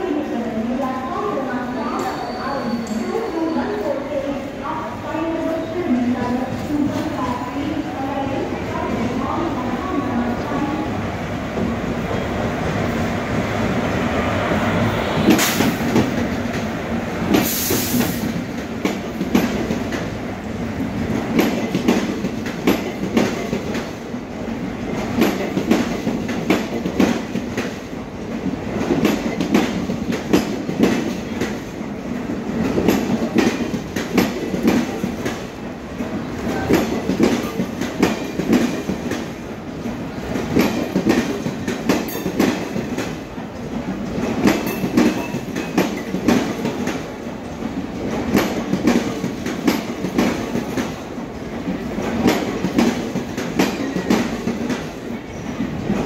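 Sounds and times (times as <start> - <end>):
electric locomotive passing: 0.0 - 56.0
train wheels clacking over rail joints: 17.3 - 20.2, 21.0 - 24.0, 24.9 - 27.8, 28.4 - 31.7, 32.6 - 35.5, 36.5 - 39.3, 40.3 - 43.2, 43.8 - 47.0, 47.7 - 55.0.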